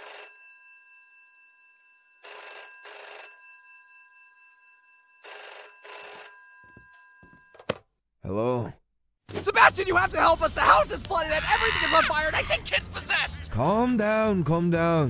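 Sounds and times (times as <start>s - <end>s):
rotary telephone ringing: 0.0s - 7.7s.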